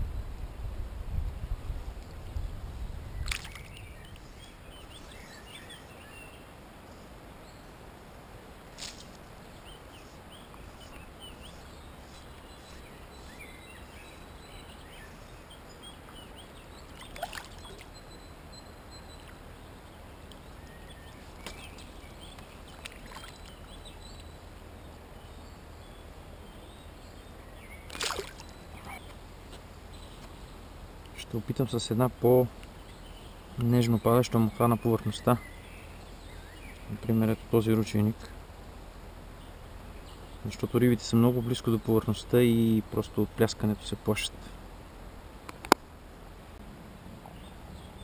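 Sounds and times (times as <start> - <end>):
low river rumble: 0.0 - 48.0
water splashes: 3.2 - 3.8, 16.9 - 17.9, 22.4 - 23.7, 27.8 - 29.1.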